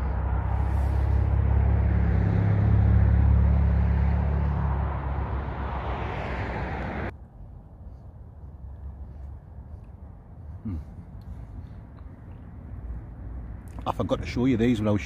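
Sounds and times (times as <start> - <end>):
vehicle engine rumbling past: 0.0 - 7.1.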